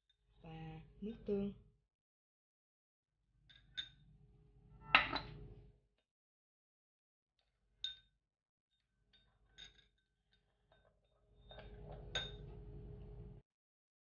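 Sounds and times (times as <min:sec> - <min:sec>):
ceramic bowls clinking: 0:10.7 - 0:12.7.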